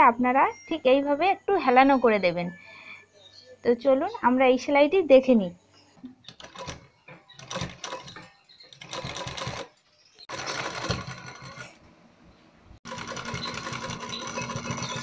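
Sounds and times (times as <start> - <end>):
sewing machine stitching: 6.3 - 9.7, 10.3 - 11.8, 12.9 - 15.0.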